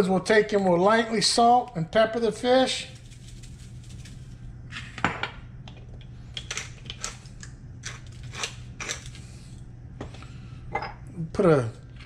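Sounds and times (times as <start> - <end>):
salt and pepper sprinkling: 2.6 - 4.5.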